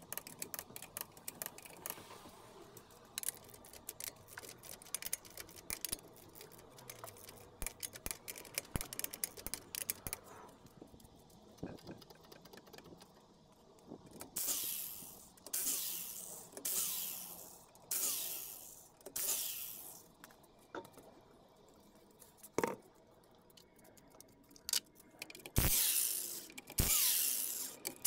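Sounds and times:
sharp metal clicks: 0.0s - 2.0s, 2.8s - 10.3s, 22.4s - 28.0s
impact wrench bursts: 14.4s - 20.0s, 25.6s - 28.0s.

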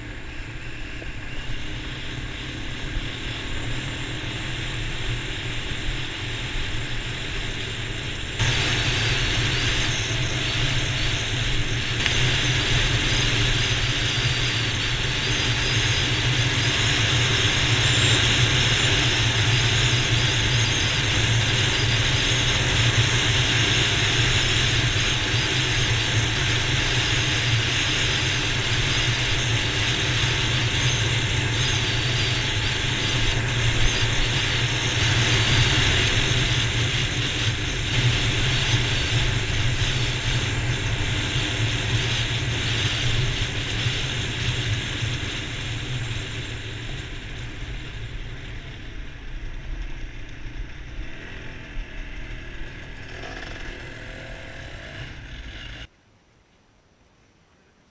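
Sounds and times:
motorcycle engine drone: 0.0s - 55.9s
road noise: 0.0s - 56.0s.

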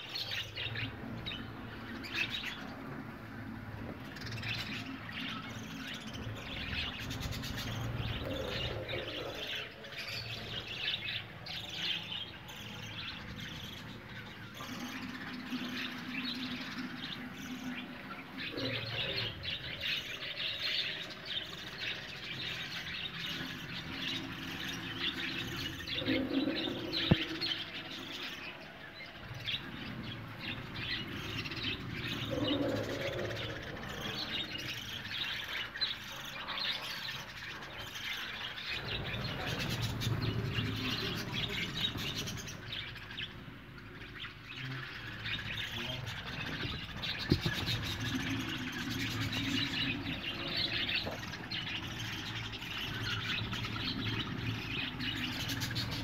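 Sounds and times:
budgerigars chattering: 14.5s - 28.6s, 29.2s - 56.0s.

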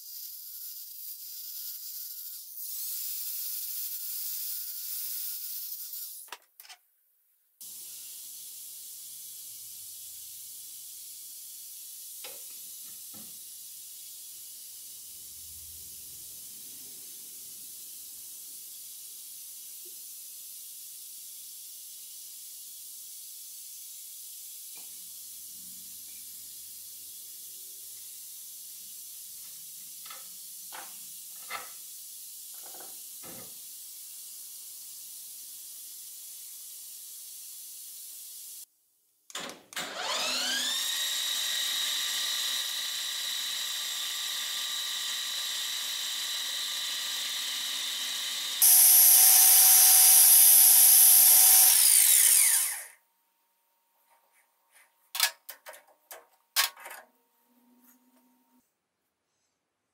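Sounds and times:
metal lathe motor whining: 39.8s - 52.9s.

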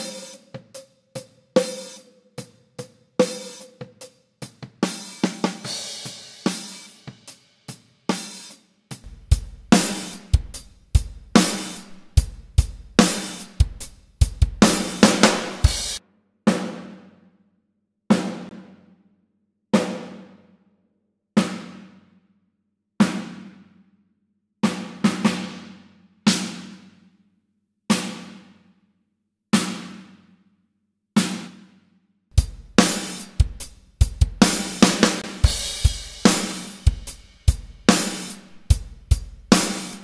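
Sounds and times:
drum kit playing a groove: 0.0s - 17.0s, 32.3s - 40.0s.

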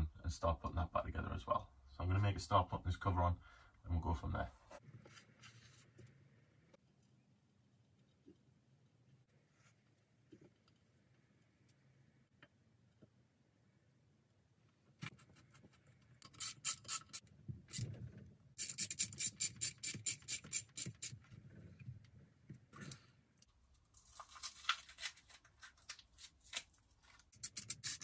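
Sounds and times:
rubbing and handling: 4.6s - 6.2s.

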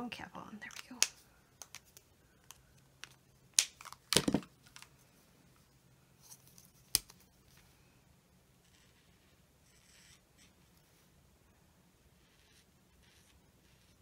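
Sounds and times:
markers clattering: 0.6s - 4.9s.

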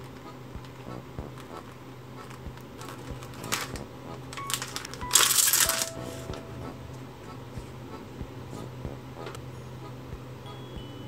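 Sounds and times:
plastic wrapper crinkling: 1.4s - 6.4s.

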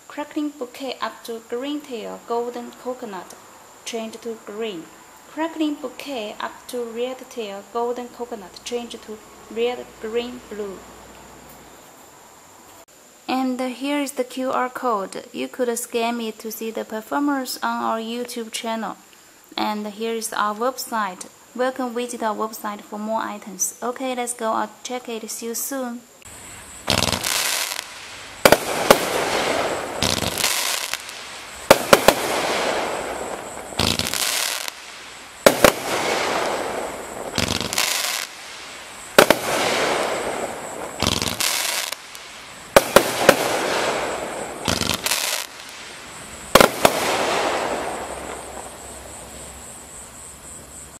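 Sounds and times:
firework crackling: 26.2s - 49.8s
firework launch reports: 26.5s - 49.0s.

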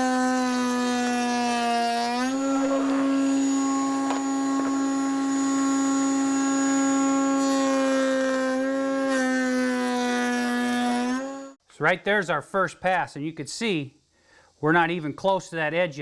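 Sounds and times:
router whining: 0.0s - 11.6s.

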